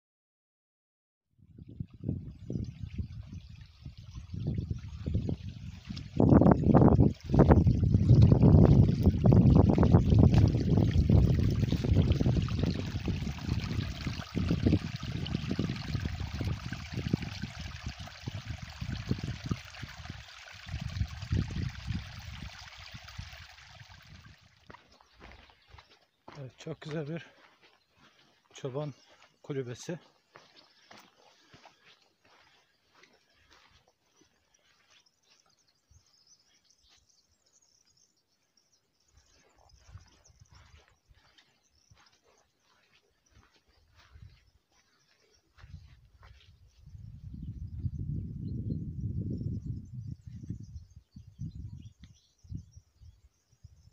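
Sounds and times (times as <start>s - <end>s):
wind rumbling on microphone: 1.4s - 25.8s, 39.1s - 53.9s
water trickling among rocks: 2.0s - 26.4s
faint high bird chirps: 24.7s - 53.9s.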